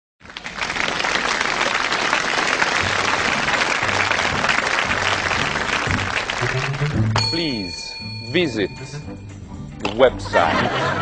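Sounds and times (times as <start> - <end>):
crowd applause: 0.2 - 7.2
low music notes: 2.8 - 11.0.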